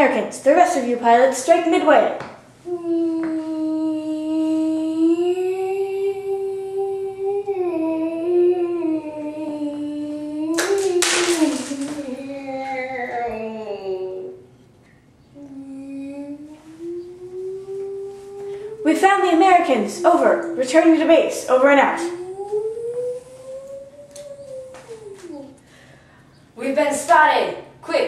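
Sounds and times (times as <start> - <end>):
person humming engine drone: 2.6 - 14.5, 15.3 - 25.6.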